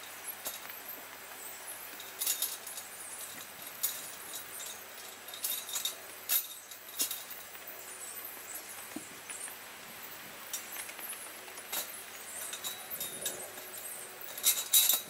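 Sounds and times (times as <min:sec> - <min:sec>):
steady hiss: 0:00.0 - 0:15.0
metal panels clinking: 0:01.9 - 0:07.6, 0:10.5 - 0:15.0.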